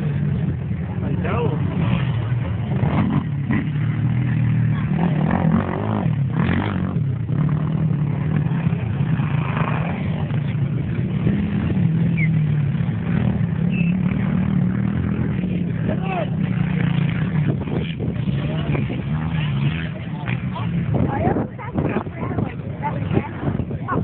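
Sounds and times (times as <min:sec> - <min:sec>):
quad bike engines revving: 0:00.0 - 0:24.0.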